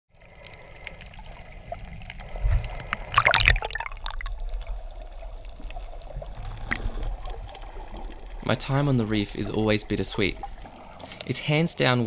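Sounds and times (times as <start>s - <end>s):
underwater sloshing and bubbling: 0.1s - 12.0s
scattered crackles: 4.0s - 11.3s.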